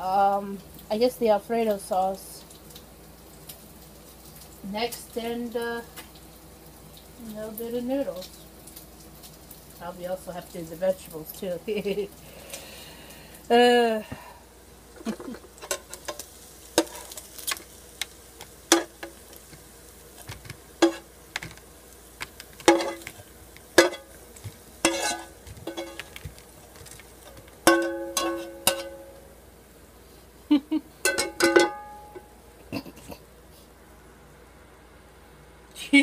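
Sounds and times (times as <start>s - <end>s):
utensil scraping in frying pan: 15.0s - 29.4s.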